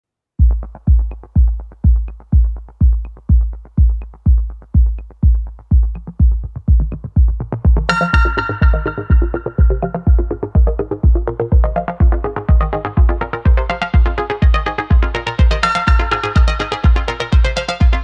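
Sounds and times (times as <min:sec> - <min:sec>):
electronic music: 0:00.4 - 0:18.0
heavy kick drum: 0:00.4 - 0:18.0
ticking hi-hats: 0:00.4 - 0:18.0
bright synth chord: 0:07.9 - 0:10.8.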